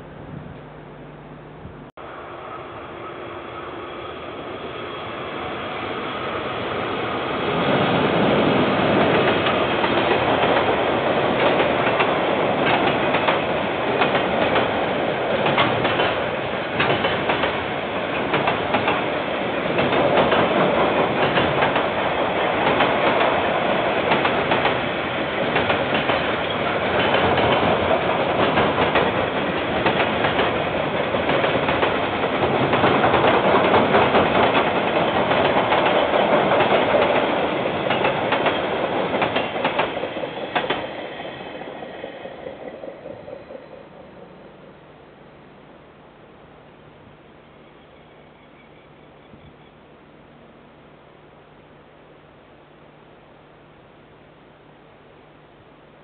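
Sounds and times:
freight train passing: 2.0 - 45.3.

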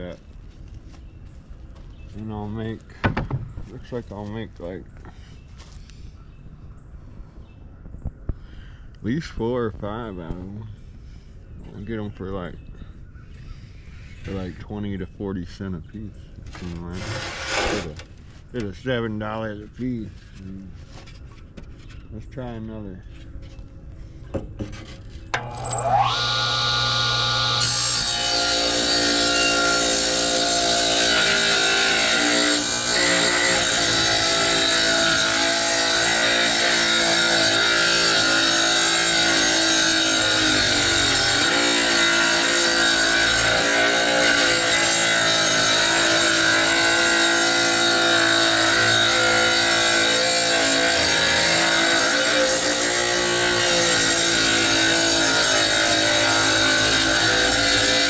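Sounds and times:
saw blade cutting wood: 16.5 - 18.1, 24.6 - 58.0
saw motor whine: 25.3 - 58.0.

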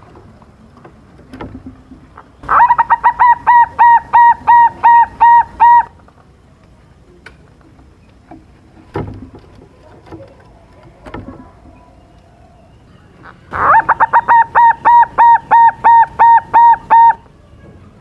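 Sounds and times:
dove cooing: 2.4 - 6.0, 13.2 - 17.2.

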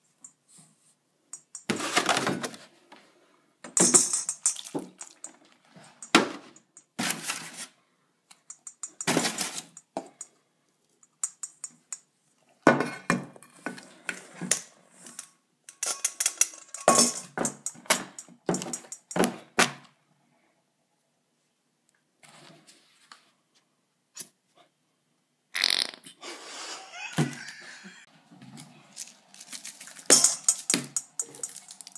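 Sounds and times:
metal bowl clattering and scraping: 3.7 - 7.6, 15.1 - 19.2, 29.0 - 31.9.

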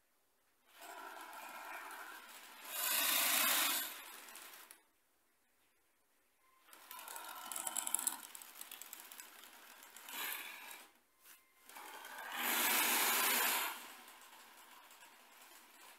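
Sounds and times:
toy tank motors whirring: 0.7 - 4.8, 6.7 - 11.0, 11.6 - 15.9
track clatter: 11.8 - 15.9.

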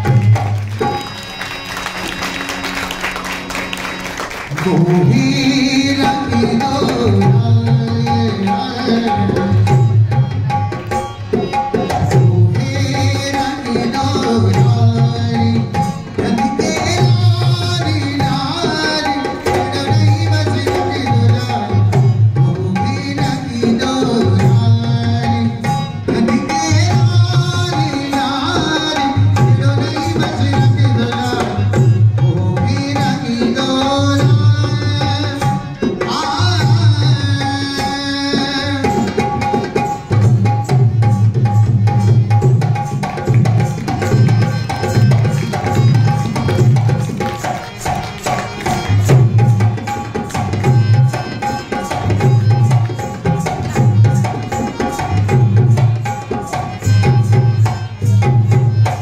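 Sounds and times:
harmonium: 0.0 - 59.0
man singing: 4.5 - 10.2, 11.8 - 41.1
hand drum beating: 4.6 - 59.0.

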